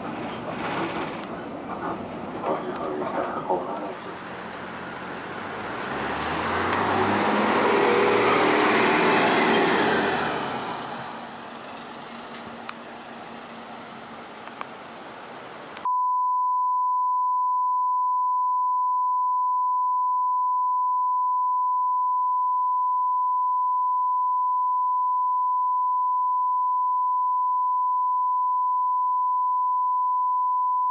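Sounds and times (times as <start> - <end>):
bus cabin noise: 0.0 - 15.9
steady test tone: 3.4 - 9.0.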